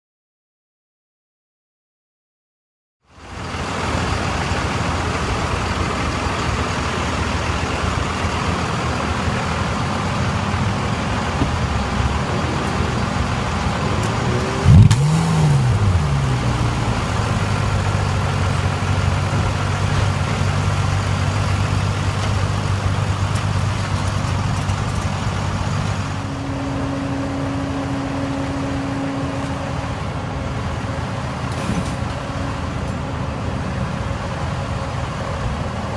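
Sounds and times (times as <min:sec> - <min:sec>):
car engine idling and revving: 0:03.1 - 0:35.9
thin whine: 0:25.9 - 0:32.4.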